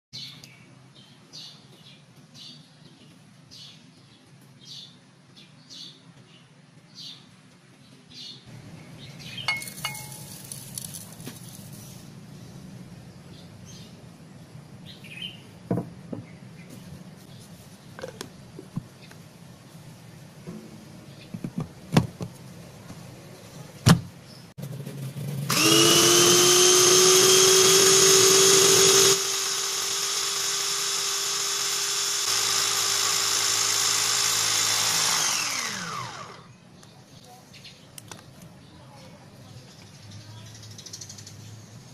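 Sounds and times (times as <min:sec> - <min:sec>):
food processor motor whining: 0:25.4 - 0:36.5.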